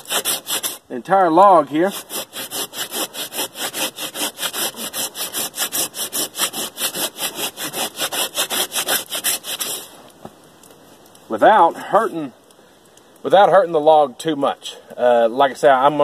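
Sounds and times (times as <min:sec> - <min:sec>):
hand saw cutting log: 0:00.0 - 0:00.8, 0:01.8 - 0:09.9.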